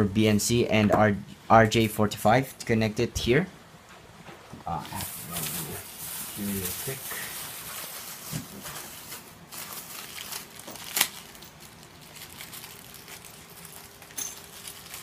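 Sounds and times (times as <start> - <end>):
plastic bag crinkling: 5.0 - 15.0.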